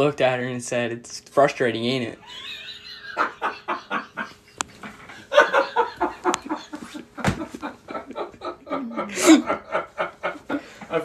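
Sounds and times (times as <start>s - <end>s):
people laughing hard: 2.2s - 11.0s.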